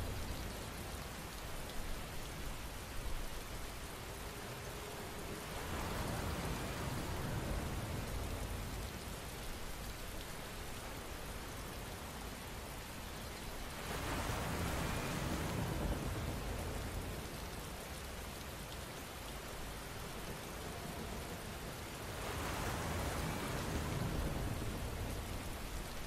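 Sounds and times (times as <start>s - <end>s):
steady rain: 0.0s - 26.0s.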